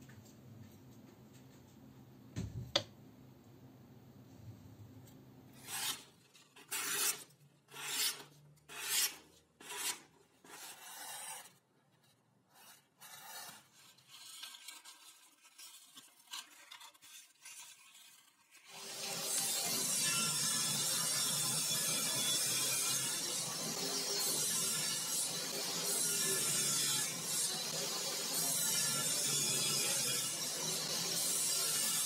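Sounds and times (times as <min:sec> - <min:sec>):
knife blade rasping strokes: 0:05.6 - 0:11.6
scissors cutting paper: 0:05.6 - 0:11.6, 0:12.5 - 0:19.2.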